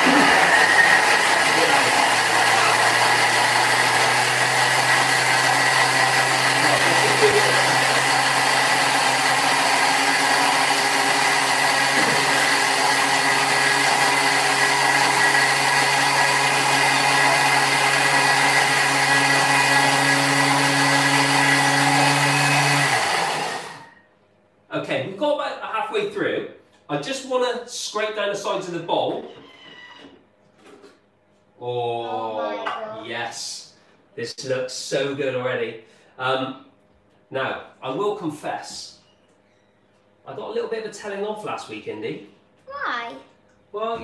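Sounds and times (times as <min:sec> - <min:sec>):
food processor whirring: 0:00.0 - 0:24.0.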